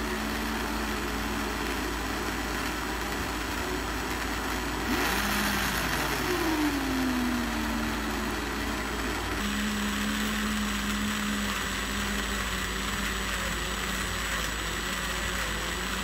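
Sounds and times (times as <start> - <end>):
small electric motor humming: 0.0 - 16.0.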